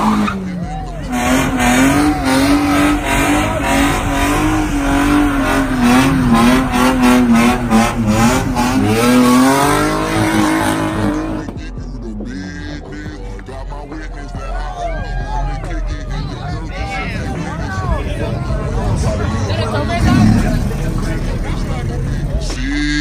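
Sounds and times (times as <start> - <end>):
tyres squealing: 0.0 - 11.4
car engine revving: 0.0 - 14.3, 15.4 - 23.0.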